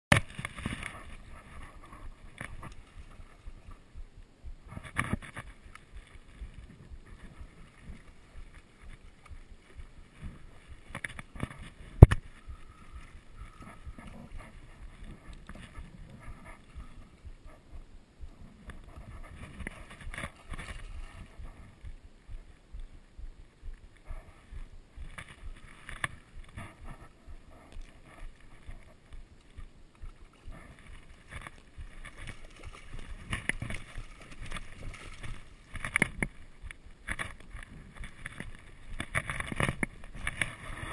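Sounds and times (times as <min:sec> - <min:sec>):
water splashing: 0:25.0 - 0:40.9.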